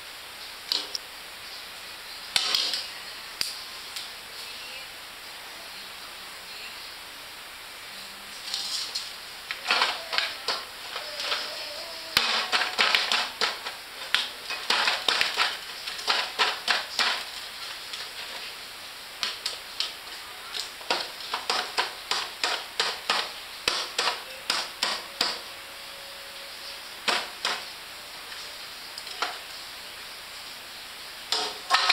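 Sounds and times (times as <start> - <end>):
baby drumming on metal tin: 9.6 - 17.3, 20.8 - 25.5.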